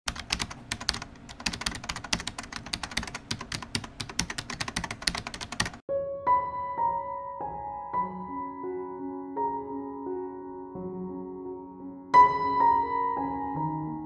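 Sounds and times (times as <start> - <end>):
rapid typing-like clicking: 0.1 - 5.8
soft piano music: 5.2 - 14.0.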